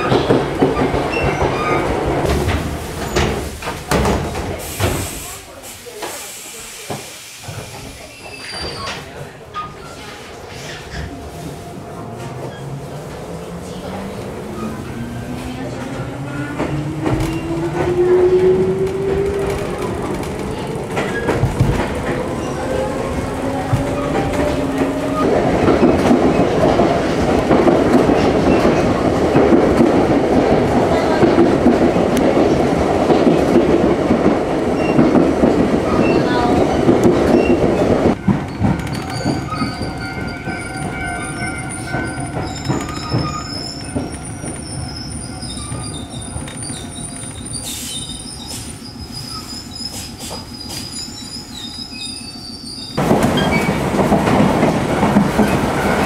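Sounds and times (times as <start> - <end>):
train rumble and clatter: 0.0 - 56.0
steel wheels squealing: 8.0 - 11.1, 35.9 - 53.8.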